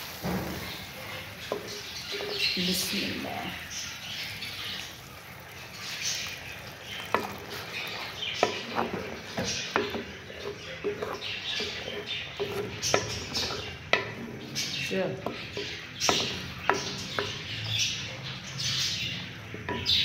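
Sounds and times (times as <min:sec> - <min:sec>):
wet swishing of stirring: 0:03.5 - 0:17.4
spoon knocking against pot: 0:07.0 - 0:17.5, 0:19.4 - 0:20.0.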